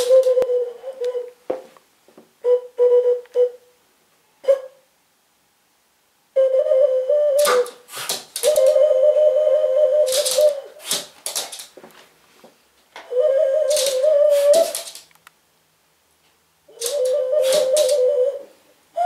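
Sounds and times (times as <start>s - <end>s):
puppy yapping: 7.4s - 8.8s
ocarina trills: 16.7s - 19.0s.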